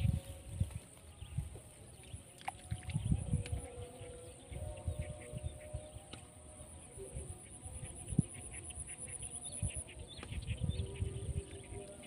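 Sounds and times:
wind buffeting microphone: 0.0s - 6.4s, 9.4s - 12.0s
high insect drone: 0.0s - 12.0s.

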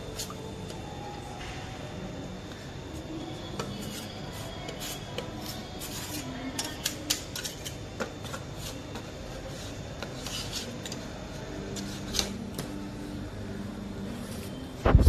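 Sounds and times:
spatulas scraping cold plate: 3.7s - 8.8s, 9.5s - 11.1s.

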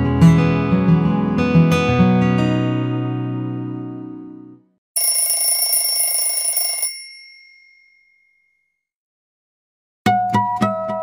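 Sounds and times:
bell-like alarm tone ringing: 5.0s - 8.7s.

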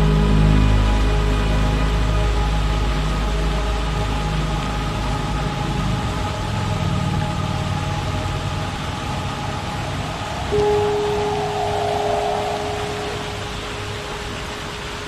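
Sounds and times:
deep drone: 0.0s - 15.0s
ambient held tones: 8.4s - 15.0s
even hiss: 8.4s - 15.0s.

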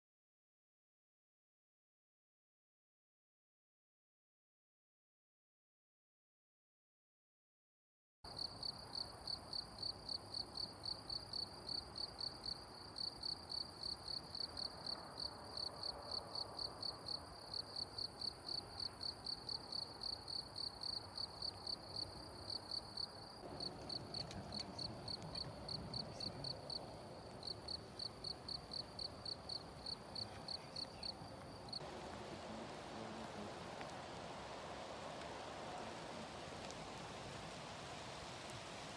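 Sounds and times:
cricket chirping: 8.3s - 34.3s
faint background hiss: 8.3s - 38.9s.

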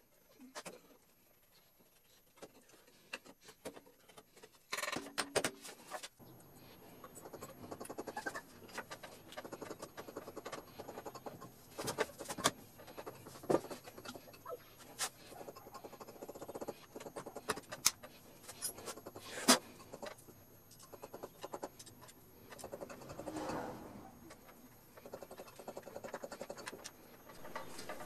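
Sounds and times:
squeaky scrape: 23.0s - 24.2s.

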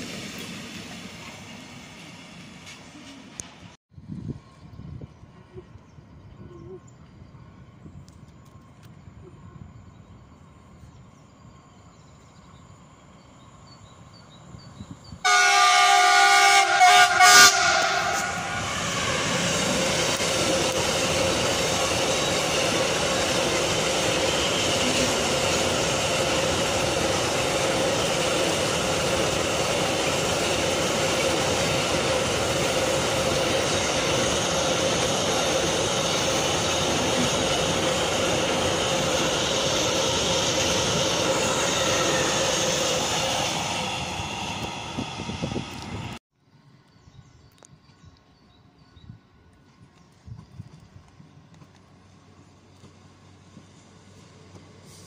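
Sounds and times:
train wagons rumbling past: 12.6s - 46.2s
train horn: 15.3s - 19.0s.

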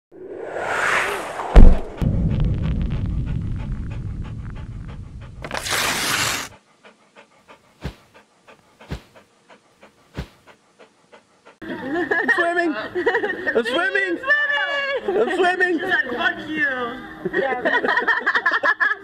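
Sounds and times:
brief whoosh: 0.1s - 5.3s
dog panting: 3.0s - 5.5s, 6.3s - 11.7s.

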